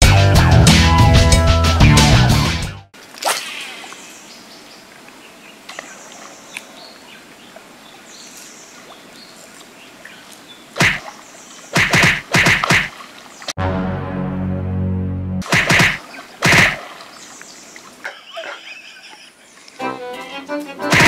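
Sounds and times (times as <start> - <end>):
lure splashing on water: 3.0 - 7.1, 8.8 - 13.5, 15.4 - 19.7
fishing rod swishing: 3.1 - 4.1, 15.4 - 17.1.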